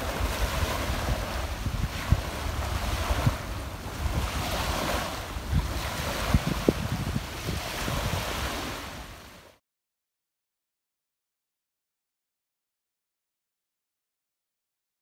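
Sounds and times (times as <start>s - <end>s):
wind buffeting microphone: 0.0s - 9.2s
small waves breaking on beach: 0.0s - 9.6s.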